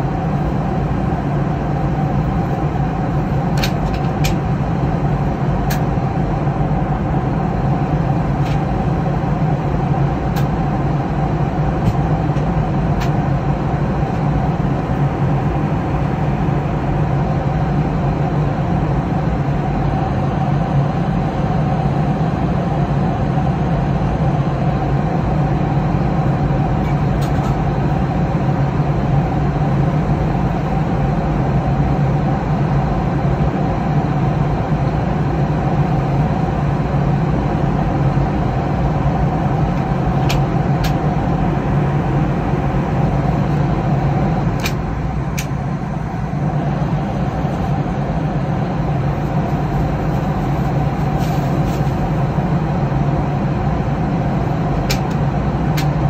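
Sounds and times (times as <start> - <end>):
airliner cabin rushing: 42.6 - 52.3.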